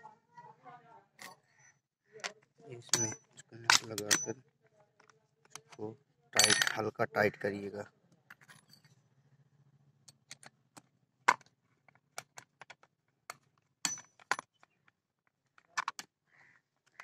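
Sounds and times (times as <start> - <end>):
spanner clinking on metal nuts: 2.9 - 4.3, 6.4 - 6.8, 13.8 - 14.6.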